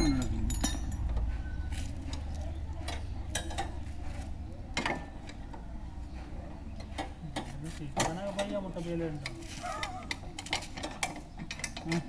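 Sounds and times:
hand tools clinking on metal: 0.0 - 3.8
low steady rumble: 0.0 - 7.1.

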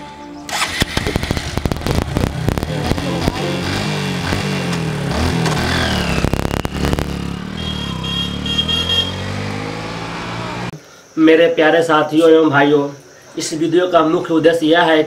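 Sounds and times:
motorcycle engine revving: 0.5 - 10.8.

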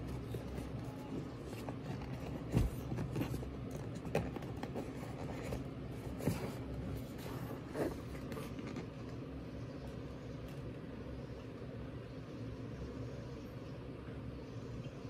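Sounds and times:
hand rubbing cardboard box: 0.0 - 9.2.

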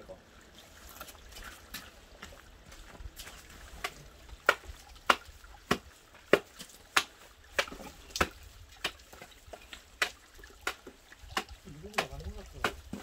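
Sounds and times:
sharp strikes chipping ice: 3.8 - 9.0, 10.0 - 13.0.

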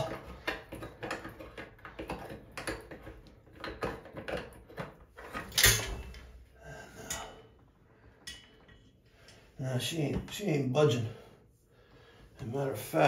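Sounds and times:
hand tools clicking and scraping: 0.0 - 6.3, 8.1 - 9.5.

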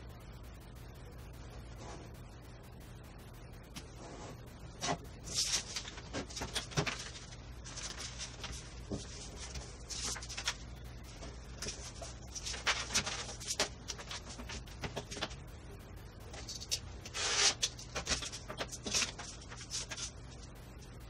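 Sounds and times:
low room hum: 0.0 - 21.0
paper rustling and crinkling: 4.0 - 15.4, 16.3 - 20.4.

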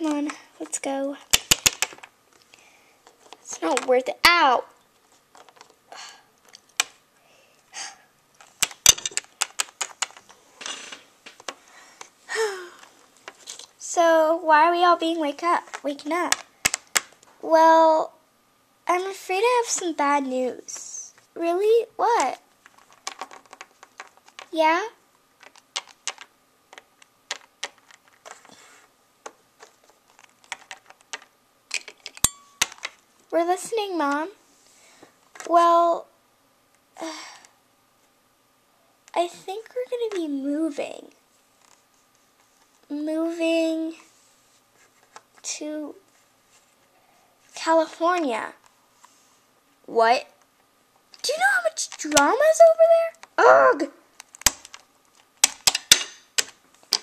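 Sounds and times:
plastic figurines clicking together: 1.3 - 2.1, 8.6 - 10.2, 25.4 - 28.4
plastic toys clicking on wood: 1.3 - 2.1, 8.5 - 10.3, 16.3 - 17.1, 22.9 - 24.6, 25.4 - 28.4, 29.3 - 32.9, 54.2 - 57.0
soft rustling: 43.8 - 49.5.

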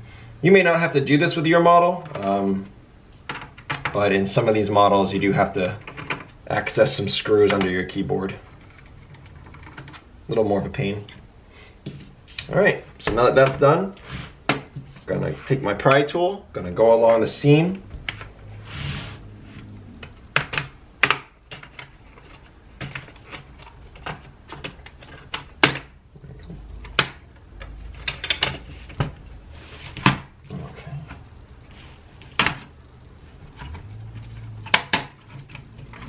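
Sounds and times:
plastic scraping: 18.0 - 36.0.

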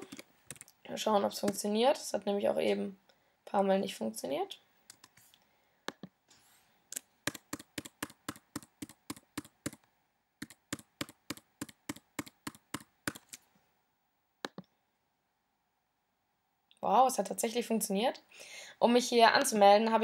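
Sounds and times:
typing on computer keyboard: 0.0 - 0.7, 7.2 - 9.8, 10.4 - 13.4
quick clicks: 6.9 - 13.4.

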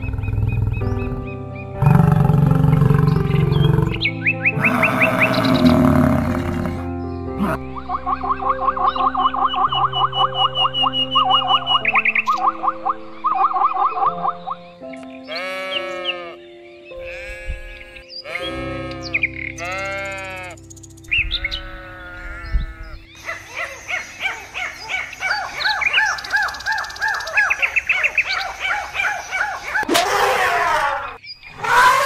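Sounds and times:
background music with held notes: 0.0 - 28.0
birds chirping rapidly: 0.0 - 32.0
bleating calls: 4.6 - 7.6, 15.3 - 16.4, 17.0 - 20.6, 21.2 - 23.1.

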